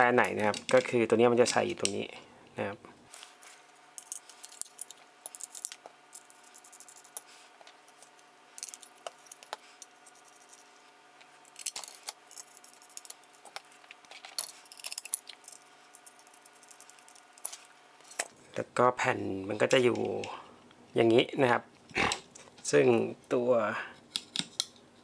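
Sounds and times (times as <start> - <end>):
metal screws clicking and rattling: 8.0 - 10.6, 11.5 - 17.6.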